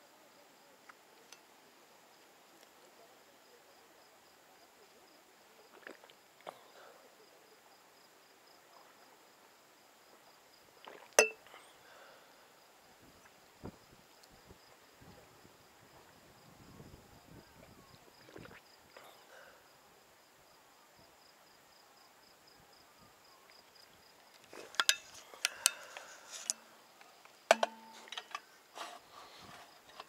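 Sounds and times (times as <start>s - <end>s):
insect chirping: 7.2s - 28.8s.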